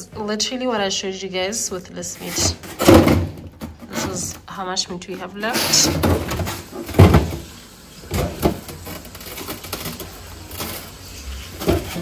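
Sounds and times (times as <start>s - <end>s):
knocks and bumps in a freezer: 2.3s - 4.4s, 5.4s - 12.0s.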